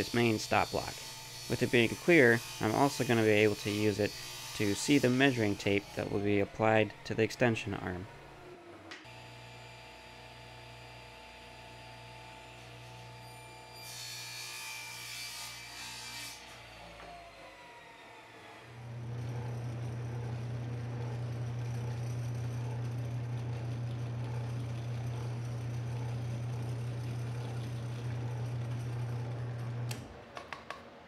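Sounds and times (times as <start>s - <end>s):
drill press drilling: 18.7s - 30.1s.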